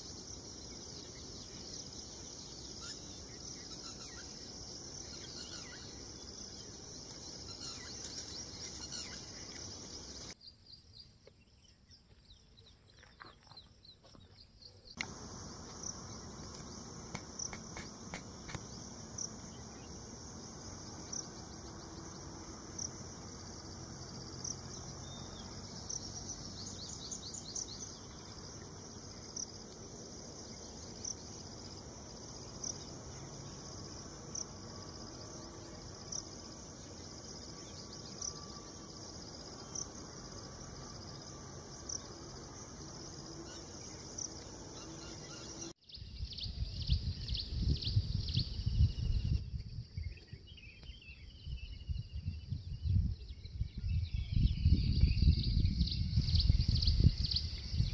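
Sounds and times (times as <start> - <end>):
bird calls: 2.6 - 10.3
background hiss: 15.0 - 45.8
low rumbling on microphone: 51.4 - 57.9.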